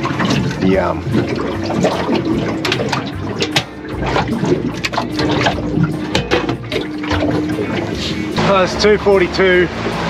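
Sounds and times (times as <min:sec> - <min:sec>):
water lapping against boat hull: 0:00.0 - 0:10.0.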